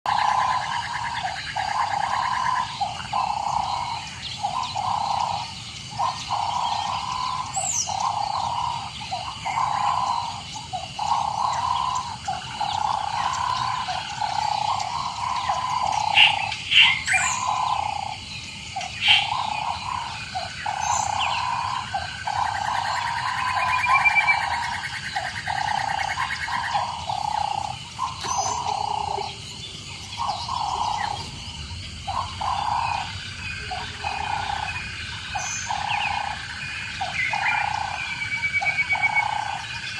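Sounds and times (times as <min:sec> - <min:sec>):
chorus of calling animals: 0:00.0 - 0:39.9
bird chirps: 0:00.1 - 0:39.9.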